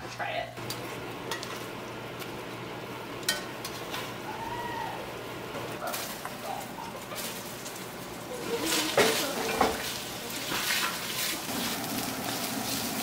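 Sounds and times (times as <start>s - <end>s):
chicken sizzling in a pot: 5.8s - 13.0s.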